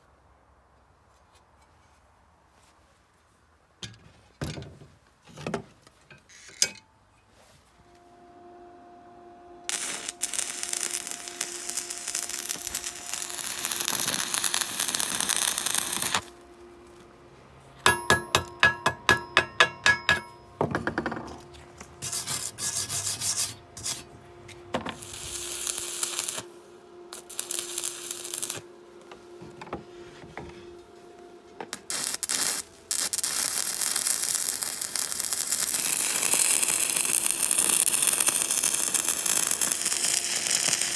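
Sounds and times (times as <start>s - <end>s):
electric arc welding crackling hiss: 9.7s - 16.9s, 24.8s - 28.7s, 31.7s - 40.9s
chipping hammer striking metal: 17.9s - 20.4s.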